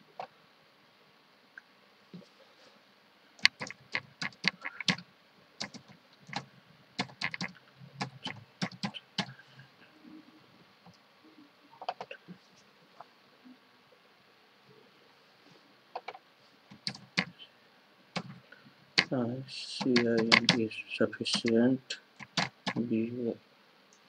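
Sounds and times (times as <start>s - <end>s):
typing on computer keyboard: 3.4s - 5.0s, 5.6s - 9.3s, 16.0s - 17.3s, 19.8s - 20.6s, 21.3s - 21.6s, 22.2s - 22.9s.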